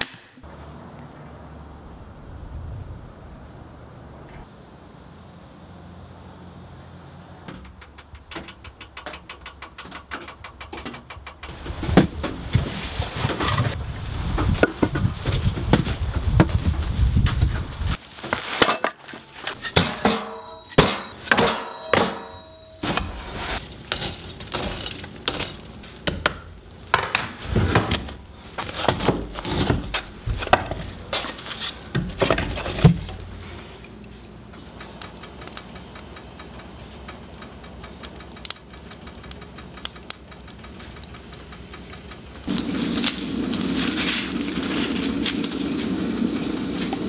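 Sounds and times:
fire crackling: 7.6s - 47.0s
stove door metal clanks: 19.6s - 23.3s
firewood logs knocking together: 24.3s - 33.3s.

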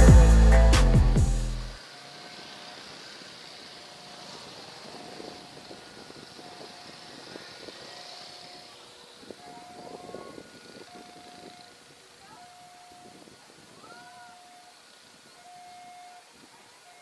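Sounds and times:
background music: 0.0s - 1.8s
steady hiss: 0.0s - 17.0s.

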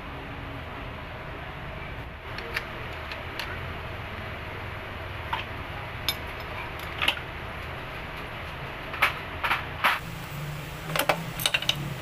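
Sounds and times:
steady low hum: 0.0s - 12.0s
metal clinks and taps: 10.9s - 11.8s.

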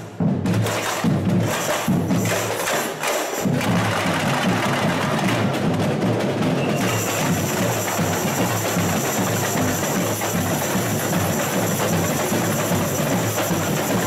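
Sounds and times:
samba drumming: 0.0s - 14.0s
deep drums: 3.4s - 14.0s.

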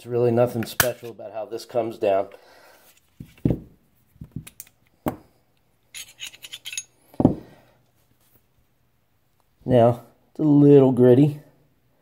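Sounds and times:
pistol parts clicking and scraping: 0.6s - 1.1s, 4.2s - 7.3s.

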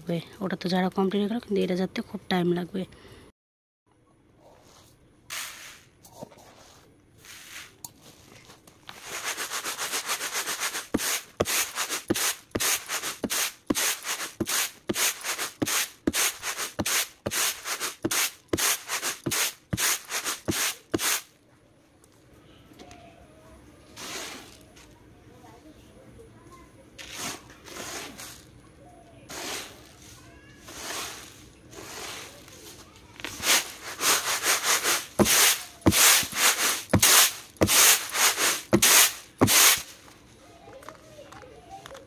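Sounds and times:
rice grains swishing in tray: 4.6s - 8.3s, 8.9s - 21.2s, 27.0s - 28.5s, 29.3s - 40.0s.

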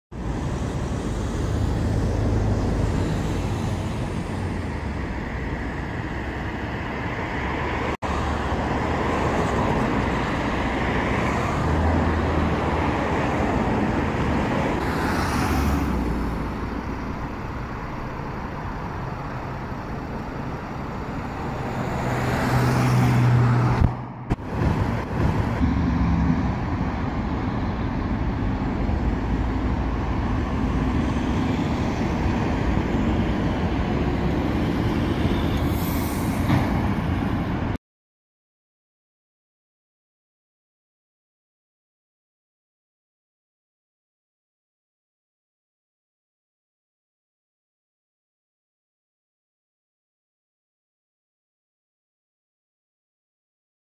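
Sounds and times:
road traffic passing: 0.1s - 37.8s.

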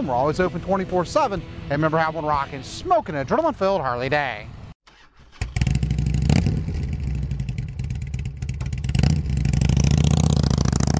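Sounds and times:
motorcycle engine revving: 4.9s - 10.9s.

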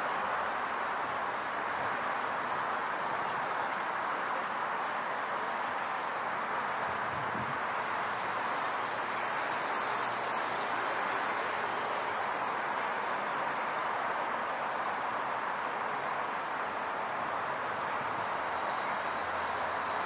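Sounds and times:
city street traffic rumble: 0.0s - 20.0s.

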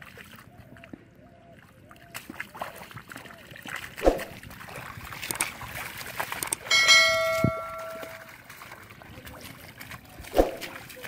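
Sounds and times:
bright bell ding: 6.6s - 8.3s.

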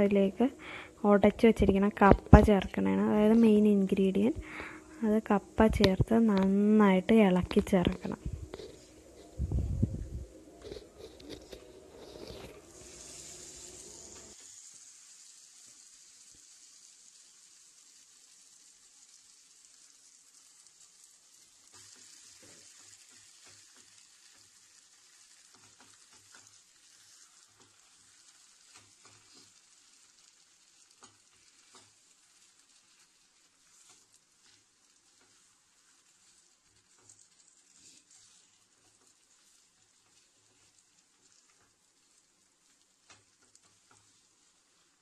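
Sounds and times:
food sizzling in oil: 0.0s - 45.0s
spatula scraping and tapping pan: 7.4s - 9.4s, 10.6s - 13.2s, 21.6s - 30.1s, 30.7s - 44.9s.

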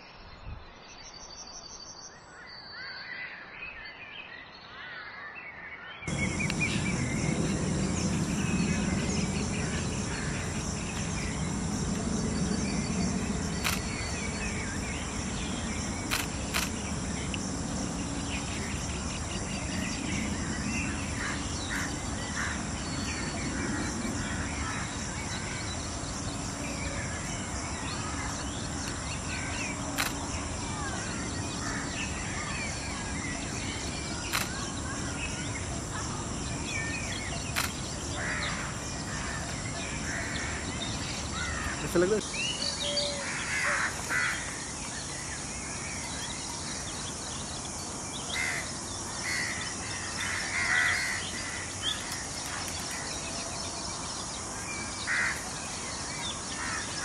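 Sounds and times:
short bird calls: 6.1s - 26.6s
high insect buzz: 6.1s - 57.0s
sharp clicks: 13.2s - 15.4s, 16.0s - 17.5s, 29.9s - 30.4s, 34.2s - 34.8s, 37.5s - 37.9s.

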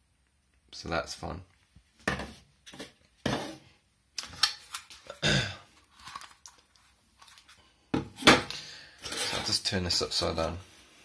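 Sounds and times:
plastic parts clattering and scraping: 4.2s - 10.4s.

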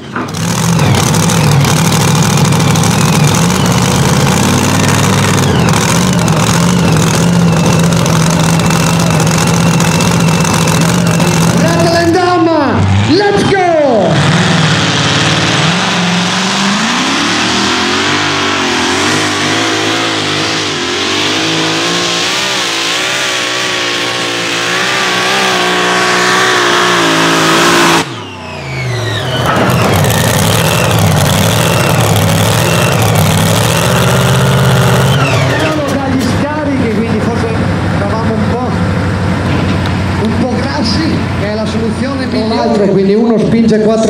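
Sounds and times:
tractor engine running at high revs: 0.0s - 13.3s, 13.9s - 42.5s
whines falling in pitch: 1.2s - 12.4s, 13.1s - 35.9s.

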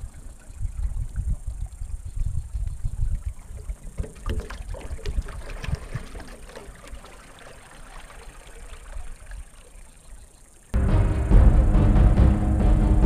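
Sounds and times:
wind buffeting the microphone: 0.0s - 6.3s
water lapping against rocks: 0.0s - 10.7s.

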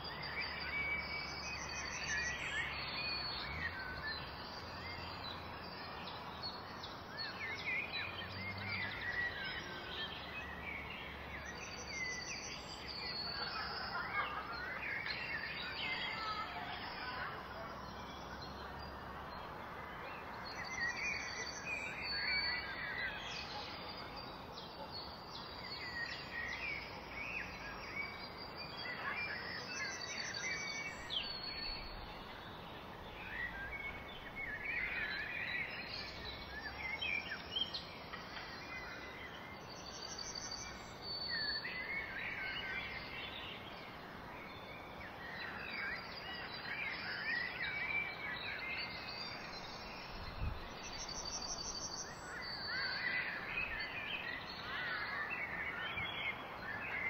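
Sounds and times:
songbirds chirping and singing: 0.0s - 57.0s
wind through grass: 0.0s - 57.0s.

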